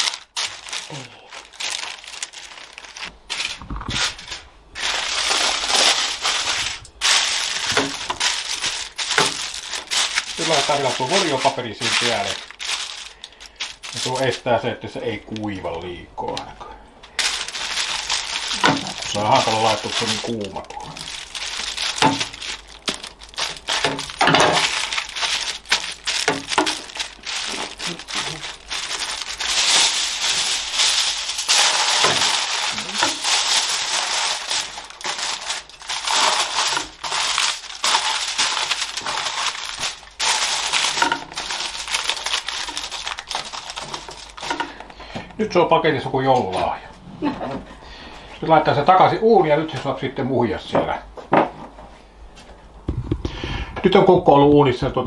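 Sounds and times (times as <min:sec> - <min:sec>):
parchment paper rustling: 0:00.0 - 0:15.9, 0:17.0 - 0:45.0
aluminium foil crinkling: 0:00.0 - 0:45.1.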